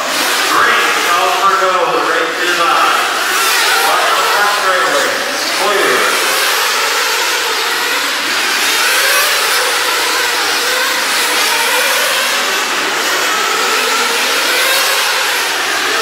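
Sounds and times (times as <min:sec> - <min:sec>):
rc car engines whining: 0:00.0 - 0:16.0.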